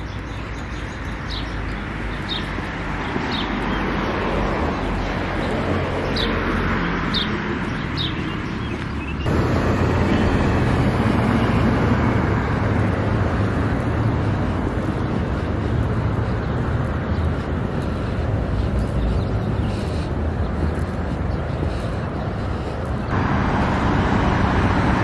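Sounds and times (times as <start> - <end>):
bird chirps: 0.0 - 9.3
road traffic noise: 0.0 - 25.0.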